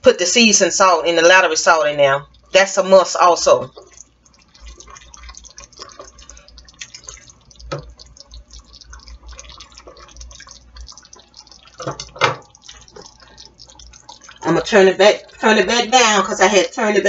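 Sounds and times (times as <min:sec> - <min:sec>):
spaghetti squelching in sauce: 0:02.0 - 0:16.5
utensil knocking: 0:11.6 - 0:13.0.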